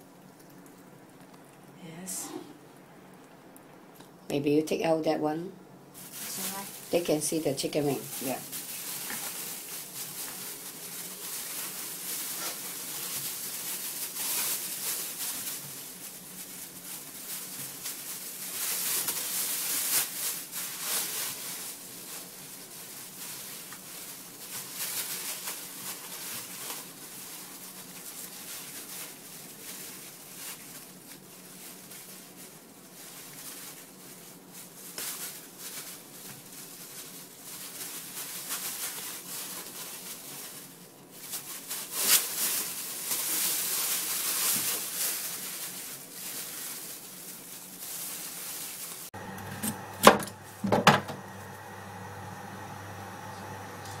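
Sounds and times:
plastic bag crinkling: 0:05.9 - 0:54.0.

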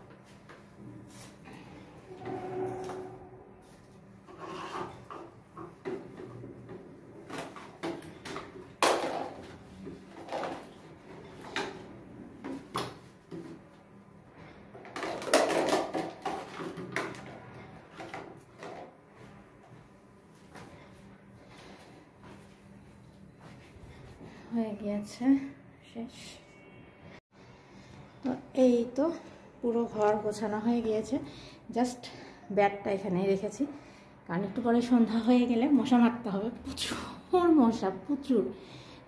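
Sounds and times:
household things knocking and clattering: 0:04.7 - 0:13.6, 0:14.8 - 0:19.0.

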